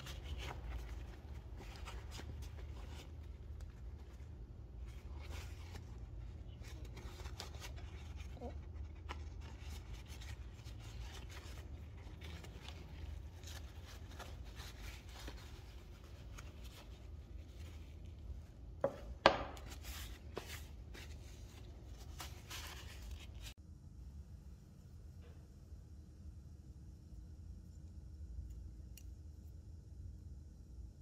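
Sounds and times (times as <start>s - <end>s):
paper towel rubbing and crinkling: 0.0s - 18.6s, 19.6s - 23.6s.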